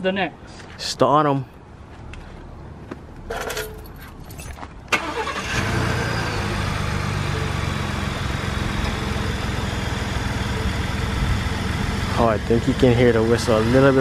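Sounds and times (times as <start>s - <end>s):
truck engine starting and idling: 4.9s - 14.0s.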